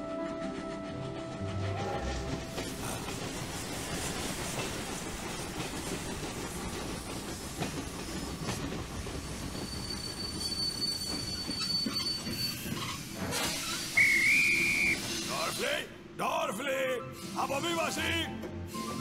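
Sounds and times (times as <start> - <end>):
train carriages rumbling: 0.0 - 16.2
train wheels squealing: 2.1 - 15.8.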